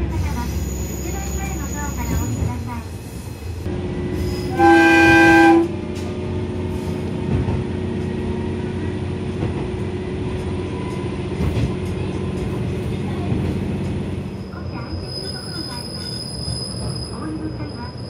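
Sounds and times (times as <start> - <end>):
railcar engine humming: 0.0 - 18.0
train horn blast: 4.4 - 5.8.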